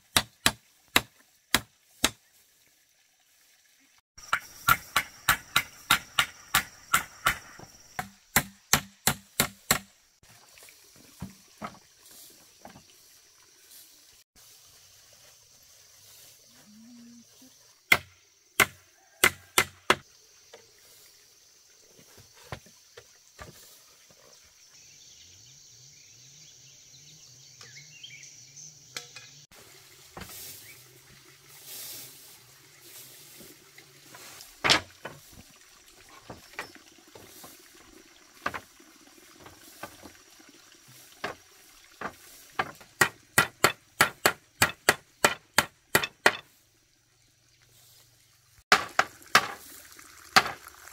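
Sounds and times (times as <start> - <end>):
hand tool strikes: 4.3 - 9.9, 42.6 - 46.4.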